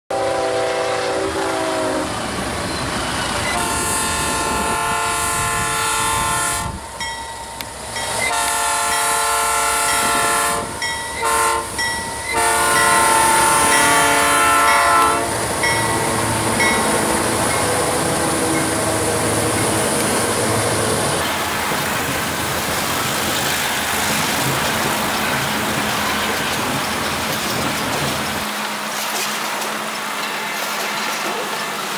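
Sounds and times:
locomotive horn blasts: 0.1 - 2.1, 3.4 - 6.8, 8.3 - 15.4
train wheel noise: 0.1 - 31.9
locomotive engine rumble: 1.5 - 31.9.

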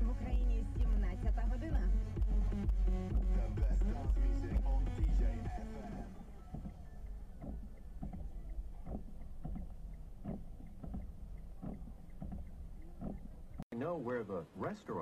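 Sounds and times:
car cabin rumble: 0.0 - 13.6
windscreen wipers knocking: 2.6 - 13.6.

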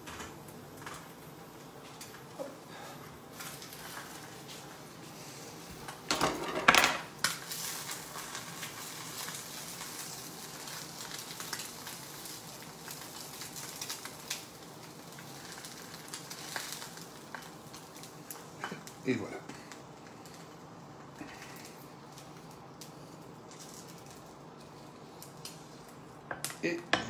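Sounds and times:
eggs sizzling in a pan: 0.0 - 27.0
frying pan clattering: 6.0 - 7.9.

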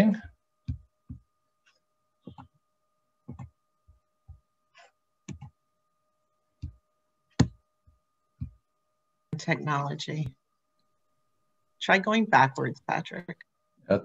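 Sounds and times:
faint steady tone: 0.0 - 14.0
clicks and taps on computer controls: 0.6 - 2.6, 3.2 - 5.6, 6.6 - 8.6.

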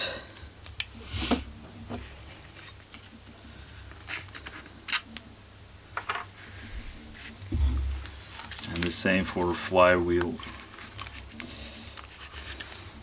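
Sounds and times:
rustle of handling: 6.2 - 13.0.

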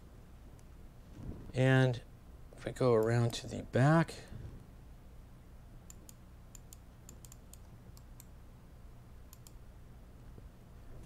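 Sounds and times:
low steady hum: 0.0 - 11.0
computer mouse clicks: 5.9 - 8.4, 9.3 - 9.6.

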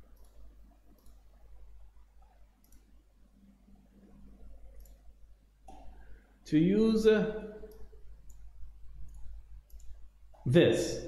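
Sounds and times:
computer mouse clicks: 0.0 - 1.4, 2.2 - 3.0, 4.7 - 6.0, 7.7 - 10.4
low background hum: 0.0 - 11.0.

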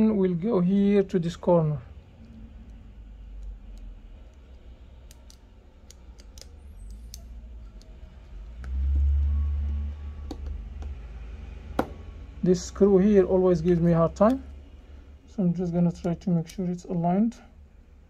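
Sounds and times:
screwdriver metal clicks and taps: 5.1 - 7.9.

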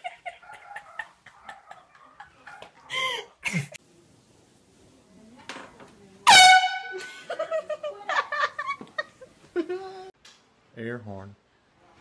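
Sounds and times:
air horn blast: 6.3 - 7.0.

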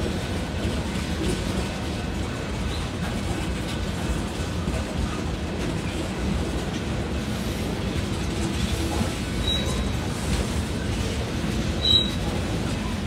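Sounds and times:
rumble of train wheels on rail: 0.0 - 13.0
high squeak: 9.4 - 9.9, 11.8 - 12.2.

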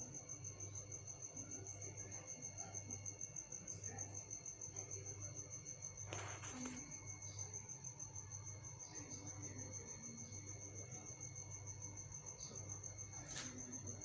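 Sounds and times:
cricket chirping: 0.0 - 14.0.

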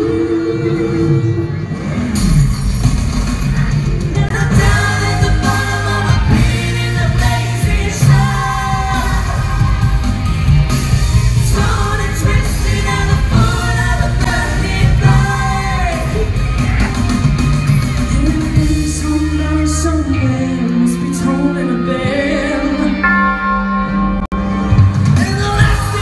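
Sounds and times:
people singing into microphones: 0.0 - 1.7, 4.2 - 17.0, 18.1 - 23.3, 25.2 - 26.0
backing track with steady beat: 1.4 - 26.0.

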